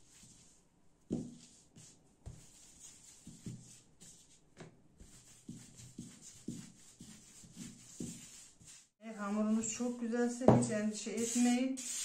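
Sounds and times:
dough rubbing and shuffling: 0.0 - 9.0.

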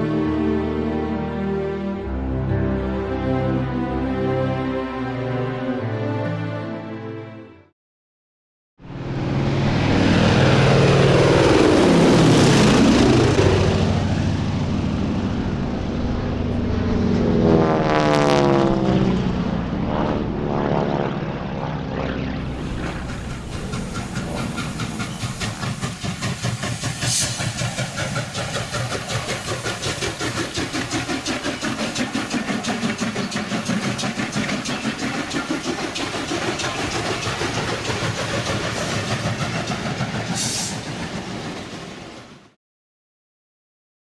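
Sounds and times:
steam locomotive chuffing: 22.4 - 42.4
steam hissing: 22.5 - 41.2.

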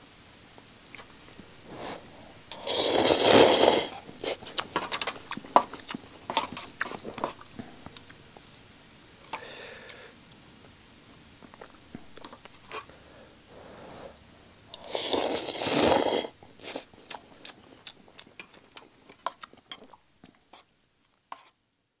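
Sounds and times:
person chewing: 0.9 - 8.2, 14.7 - 20.7
person slurping noodles: 1.6 - 5.4, 14.8 - 17.6.

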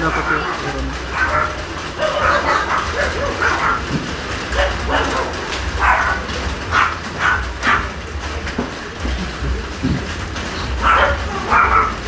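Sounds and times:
dog barking: 0.0 - 8.0, 10.8 - 12.0.

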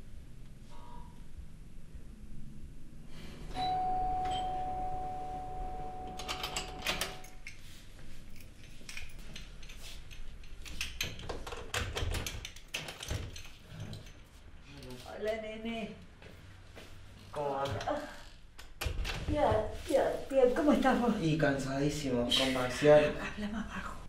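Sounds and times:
doorbell chime: 3.6 - 7.4.

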